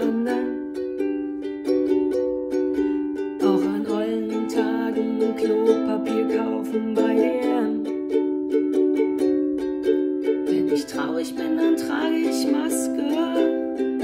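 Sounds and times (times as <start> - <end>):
woman singing: 0.0 - 1.4, 2.8 - 8.2, 10.2 - 14.0
ukulele strummed: 0.0 - 14.0.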